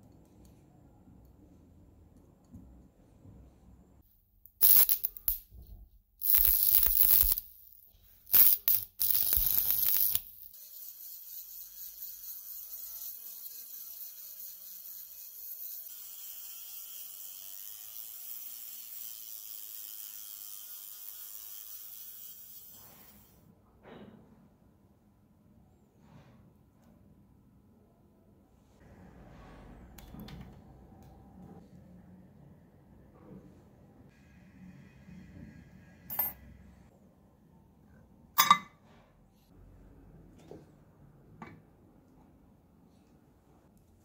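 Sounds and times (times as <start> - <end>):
arc welding crackle: 4.6 - 5.4, 6.2 - 10.6
rotary tool grinding whine: 9.3 - 23.3.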